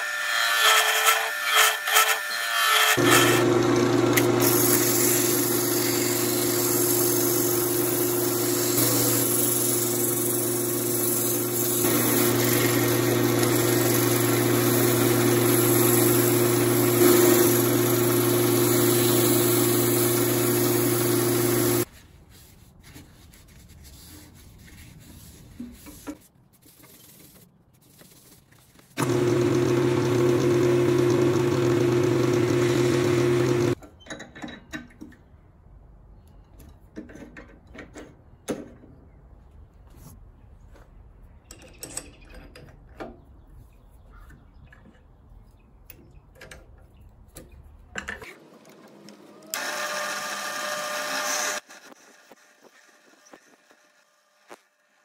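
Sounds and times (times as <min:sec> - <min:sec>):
wood lathe motor hum: 0:03.0 - 0:21.9, 0:29.0 - 0:33.8, 0:49.1 - 0:54.4
hand-sanding spinning wood: 0:04.4 - 0:26.0.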